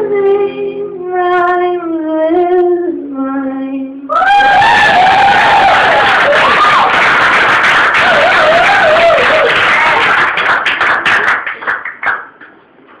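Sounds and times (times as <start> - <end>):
audience applauding and cheering: 4.2 - 12.4.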